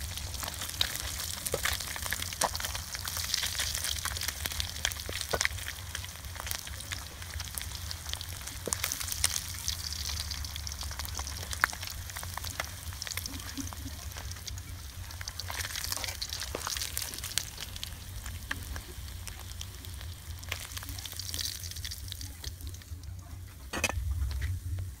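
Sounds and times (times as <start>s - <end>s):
oil crackling pops: 0.0s - 24.4s
fish sizzling in hot oil: 0.0s - 25.0s
low rumble: 22.1s - 25.0s.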